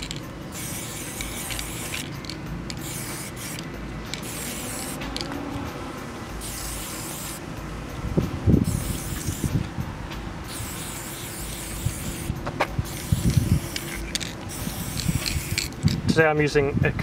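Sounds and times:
spray paint can hissing: 0:00.0 - 0:05.4, 0:06.4 - 0:07.4, 0:08.6 - 0:09.6, 0:10.5 - 0:16.0.

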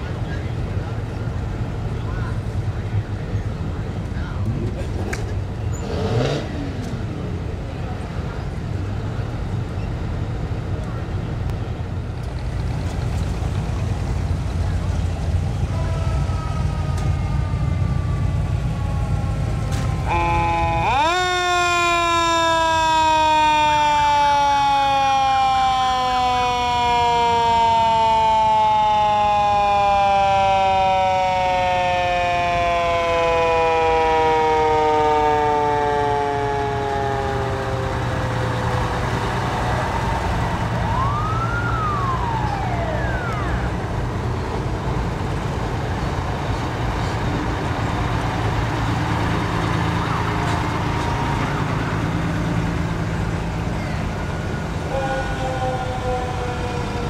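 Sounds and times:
truck engines rumbling: 0:00.0 - 0:57.0
rising and falling tone: 0:17.0 - 0:43.9.

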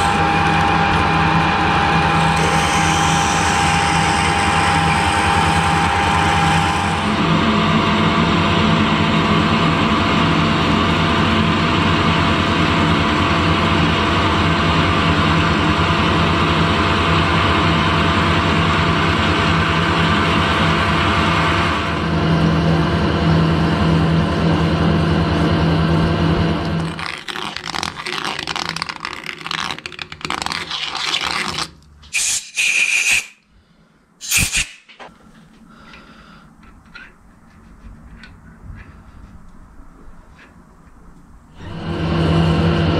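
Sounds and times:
metal lathe drilling: 0:00.0 - 0:07.3.

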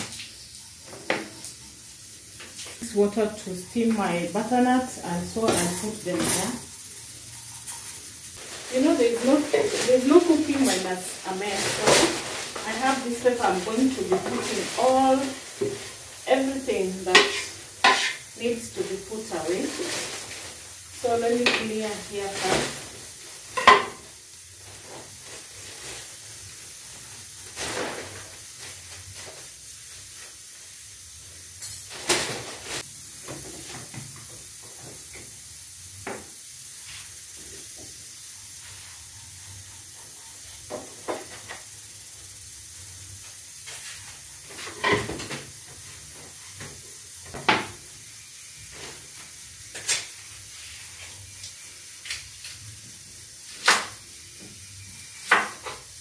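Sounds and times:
pots steaming hiss: 0:00.0 - 0:56.0
utensils clattering on counter: 0:05.3 - 0:06.7, 0:08.7 - 0:20.2, 0:23.5 - 0:24.1, 0:44.6 - 0:45.5.

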